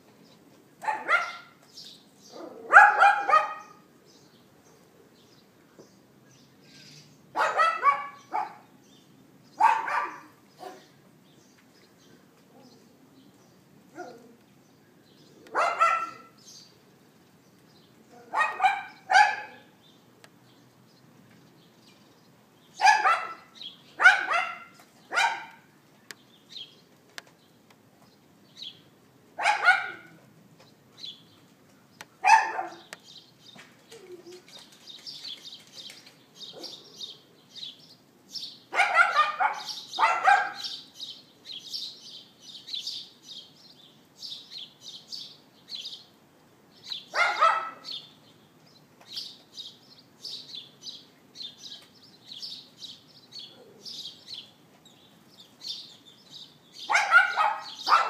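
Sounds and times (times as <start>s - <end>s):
small dog yapping: 0.8s - 1.6s, 2.3s - 3.8s, 7.4s - 8.6s, 9.6s - 10.9s, 15.5s - 16.3s, 18.1s - 19.7s, 22.8s - 25.6s, 29.4s - 30.2s, 32.2s - 32.9s, 38.8s - 40.8s, 47.1s - 47.9s, 56.9s - 58.0s.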